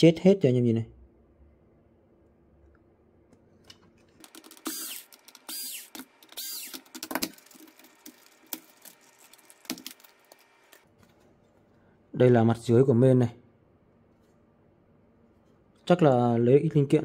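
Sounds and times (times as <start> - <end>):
electric screwdriver whirring: 4.2 - 7.4.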